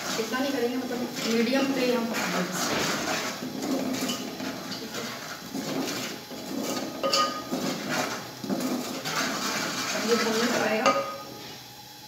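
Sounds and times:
spoon scraping metal pot: 0.0 - 11.2.

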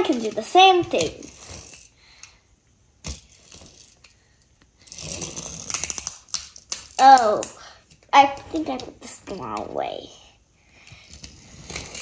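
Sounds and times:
toy car wheels whirring: 0.0 - 2.3, 3.0 - 4.2, 4.8 - 7.4, 11.0 - 12.0.

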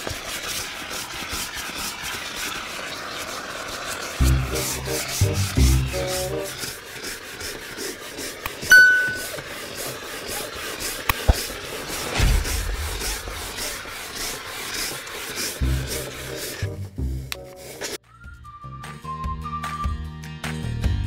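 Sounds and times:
background music: 4.2 - 6.6, 15.6 - 21.0
rhythmic scrubbing strokes: 4.2 - 9.4, 11.4 - 18.0
bright ringing clink: 8.7 - 9.3.

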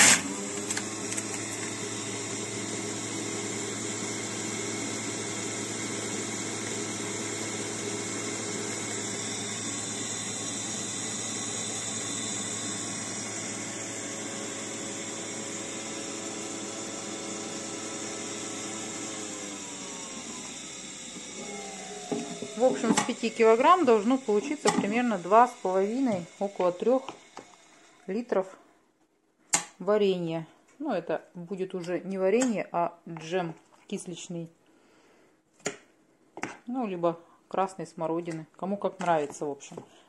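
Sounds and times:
juicer motor humming: 0.0 - 28.1.

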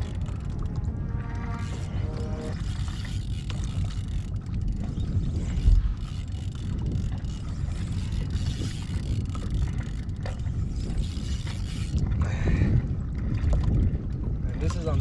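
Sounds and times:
fishing reel cranking: 0.0 - 0.8, 1.5 - 12.1
wind buffeting microphone: 0.0 - 15.0.

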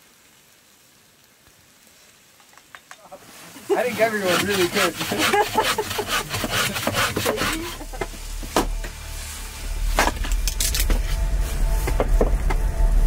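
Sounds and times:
axe splitting wood: 4.3 - 7.6.

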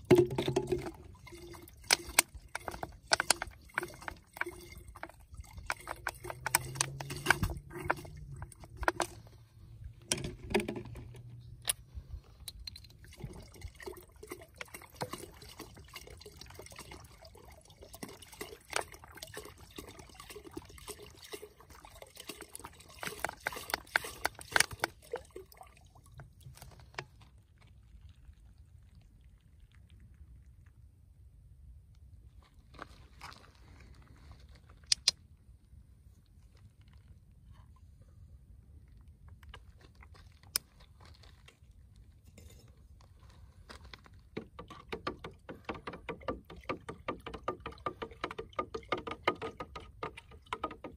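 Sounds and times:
sharp drips: 0.0 - 9.3
liquid pouring into plastic jug: 0.0 - 11.4, 12.5 - 30.9, 41.2 - 50.9.

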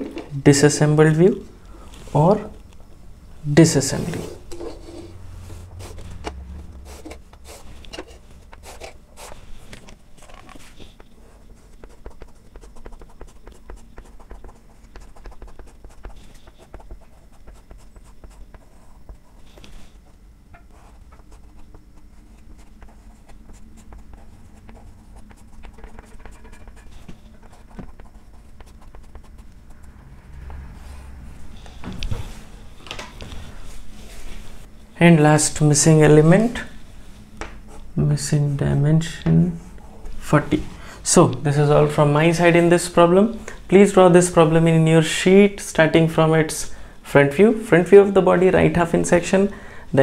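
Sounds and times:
chalk tapping and scratching: 6.9 - 20.0, 20.6 - 30.6.

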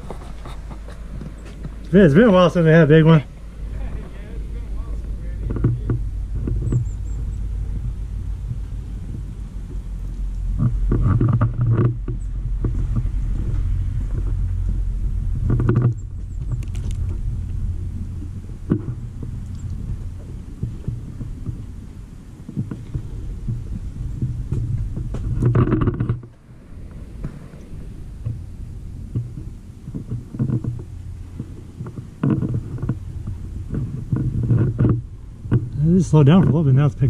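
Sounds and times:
wind rumble on microphone: 0.0 - 37.0.

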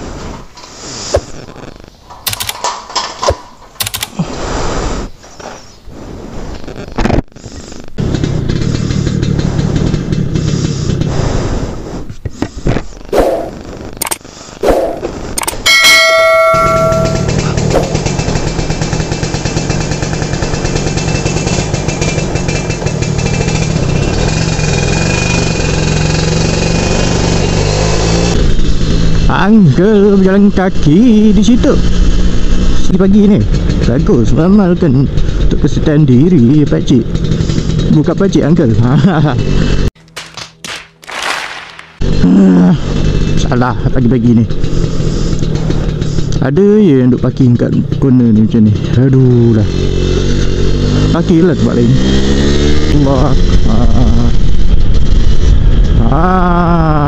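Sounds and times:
motorcycle clicks and metallic rattles: 2.1 - 4.2, 14.0 - 14.2, 15.4 - 15.8, 44.5 - 46.4
motorcycle engine riding off: 6.7 - 14.1, 14.9 - 40.0, 41.0 - 57.0.

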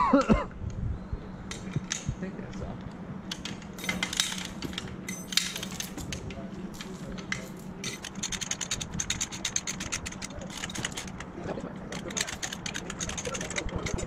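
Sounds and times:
chain hoist ratchet clicks: 3.3 - 14.0.

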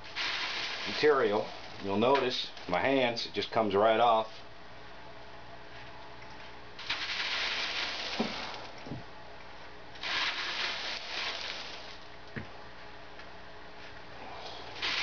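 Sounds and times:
gritty scraping through wire screen: 0.0 - 2.2, 6.8 - 8.8, 10.0 - 12.0, 14.7 - 15.0.

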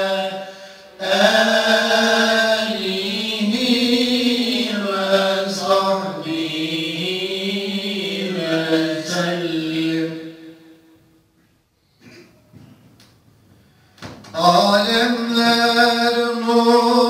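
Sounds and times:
man chanting a hymn: 0.0 - 10.7, 14.3 - 17.0.

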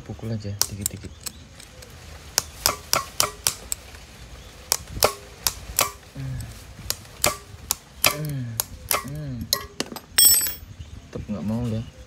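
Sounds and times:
metal-on-metal knocks: 8.9 - 10.7.

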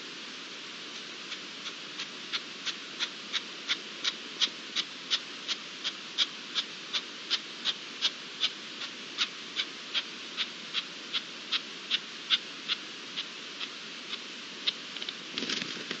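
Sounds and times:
background hiss: 0.0 - 16.0.

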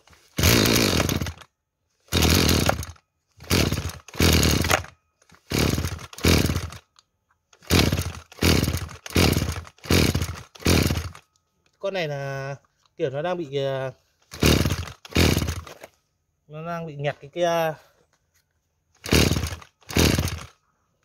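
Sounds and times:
recoil starter cranking engine: 0.3 - 1.5, 2.1 - 6.9, 7.6 - 11.3, 14.2 - 15.8, 19.0 - 20.6.

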